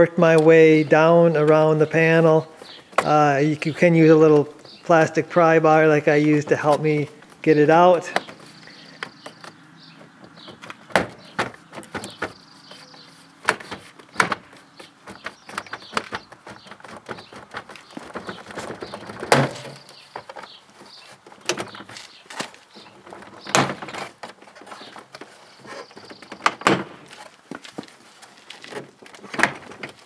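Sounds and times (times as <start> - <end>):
door panel knocks and rattles: 10.3 - 12.4, 13.4 - 20.5, 26.0 - 27.0.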